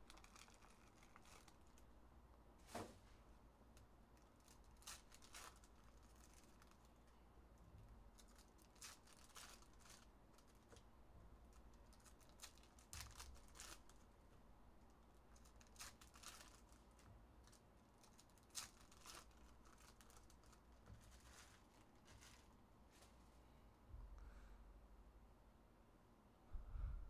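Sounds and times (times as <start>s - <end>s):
foil wrappers crinkling: 0.0s - 1.9s, 4.1s - 7.2s, 8.1s - 10.8s, 11.5s - 14.1s, 15.3s - 22.6s.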